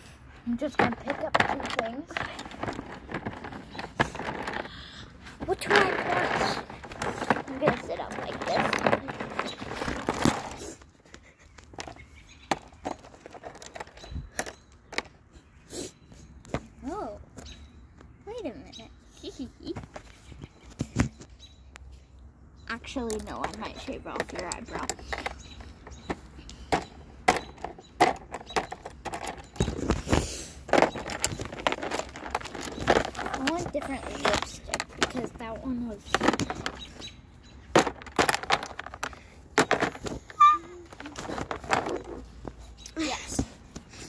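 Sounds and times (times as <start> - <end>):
handling clicks and knocks: 0.5 - 4.7, 5.4 - 15.3, 22.8 - 42.7.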